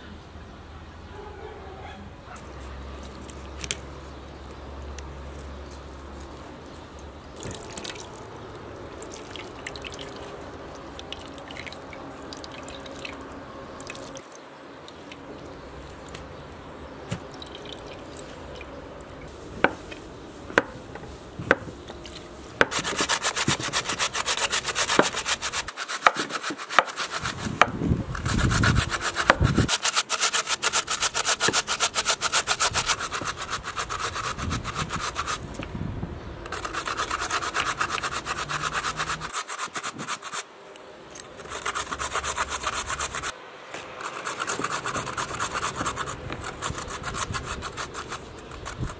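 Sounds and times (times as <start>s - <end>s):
potato grating on metal grater: 22.6s - 35.5s, 36.5s - 40.5s, 41.2s - 43.3s, 44.0s - 48.9s.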